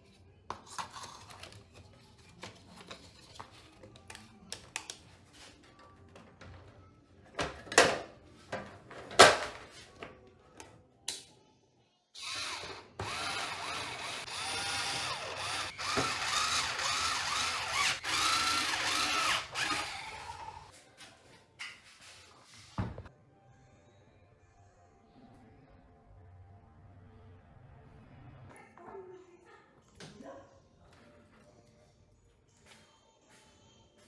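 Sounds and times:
handheld power tool running: 12.2 - 20.6.

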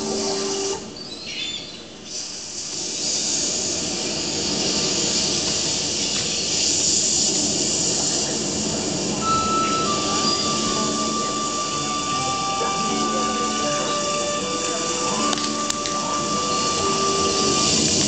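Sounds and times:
hissing rushing noise: 2.2 - 18.0
held musical note: 9.2 - 18.0.

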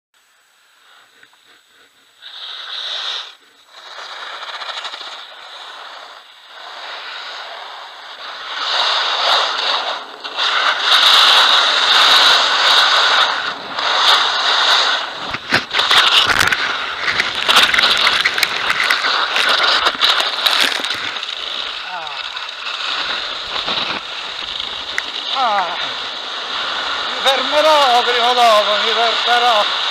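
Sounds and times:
skis scraping on snow: 0.8 - 29.9
skier falling and tumbling: 2.2 - 29.9.

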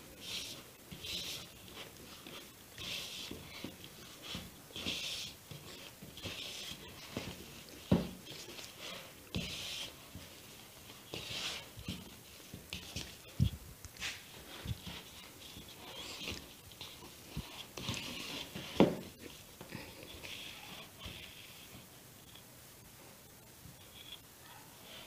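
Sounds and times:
hands kneading dough: 0.0 - 21.9
dull thumps: 3.2 - 8.6.

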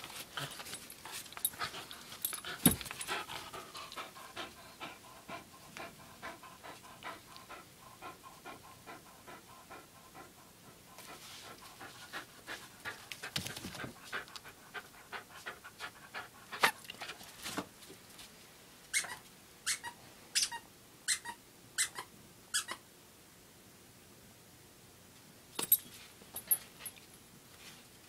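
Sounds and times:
dog panting: 0.2 - 17.3.

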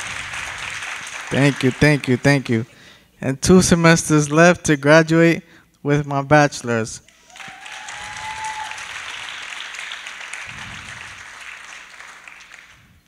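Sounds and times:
audience applauding: 0.0 - 2.5, 7.2 - 13.0.

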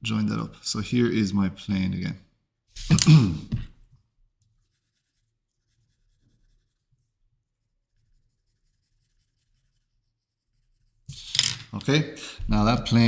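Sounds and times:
pencil scratching on paper: 4.4 - 11.4.

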